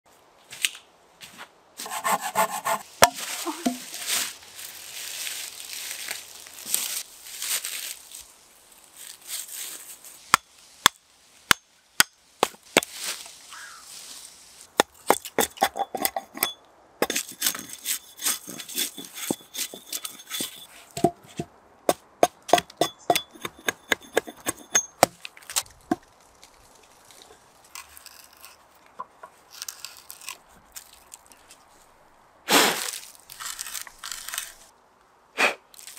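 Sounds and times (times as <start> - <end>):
footsteps on dry leaves: 2.6 - 10.8, 12.5 - 14.7, 32.6 - 34.7
hatchet chopping log: 14.8 - 16.1, 21.9 - 25.2.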